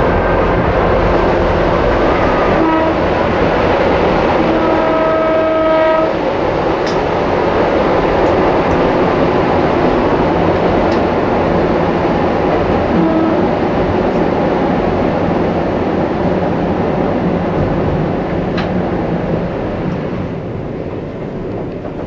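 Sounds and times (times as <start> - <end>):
train wheels and motors running: 0.0 - 22.0
train horn: 2.0 - 3.3, 4.3 - 6.2, 12.9 - 13.6.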